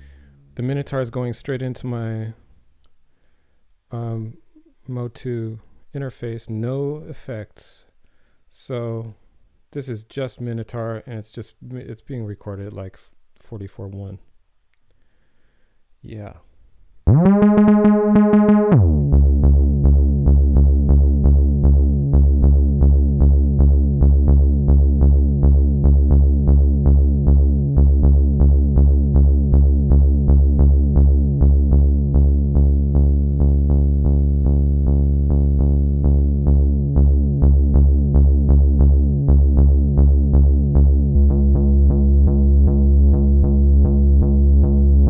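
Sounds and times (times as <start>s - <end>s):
buzzy bass synthesizer note: 17.1s - 45.0s.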